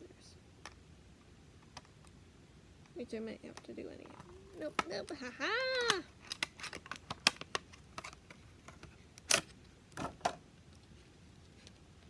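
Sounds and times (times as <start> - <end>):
packaging clicks and taps: 3.6 - 9.4.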